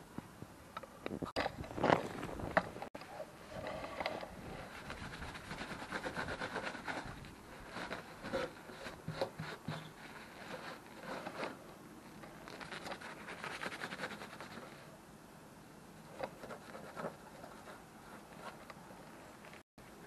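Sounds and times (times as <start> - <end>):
hand scratching flaking rust: 1.8 - 14.9, 16.0 - 19.6.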